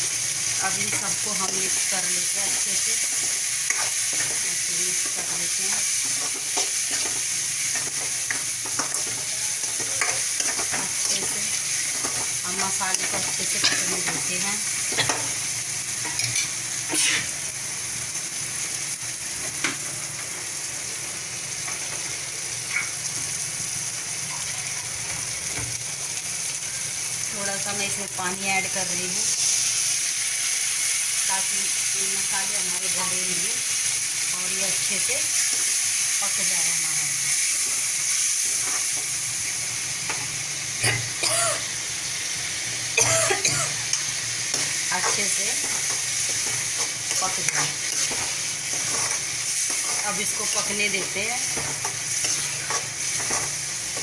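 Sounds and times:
food sizzling in oil: 0:00.0 - 0:54.0
spoon scraping pan: 0:00.8 - 0:15.4, 0:43.9 - 0:54.0.

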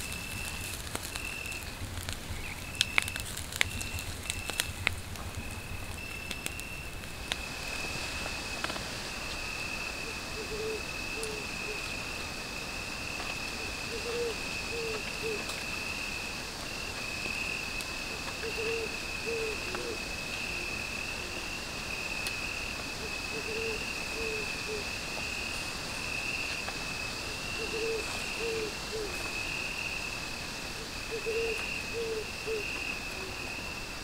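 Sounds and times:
crickets trilling: 0:00.0 - 0:34.0.

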